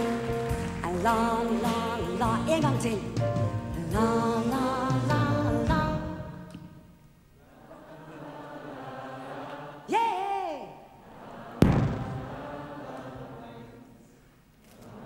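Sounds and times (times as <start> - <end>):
audience singing along: 3.9 - 5.8, 7.4 - 9.9, 11.0 - 14.1, 14.7 - 15.0
band loud hit: 11.6 - 12.6.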